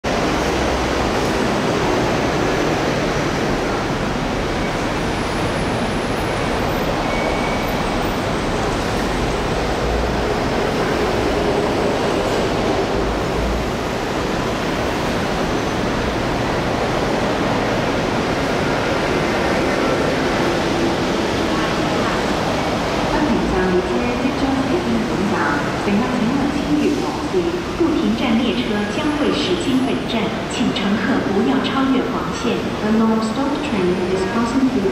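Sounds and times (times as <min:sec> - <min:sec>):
station platform rumble and hiss: 0:00.0 - 0:34.9.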